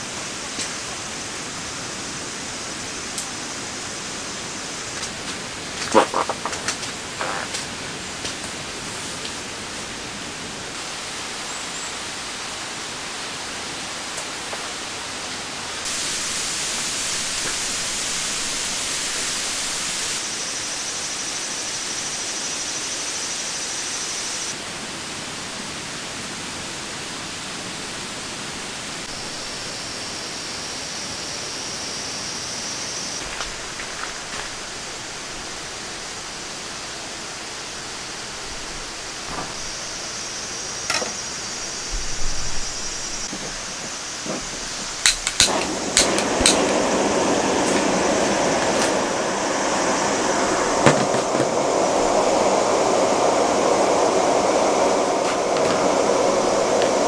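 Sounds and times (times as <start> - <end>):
rain hissing: 0.0 - 24.8, 26.6 - 57.0.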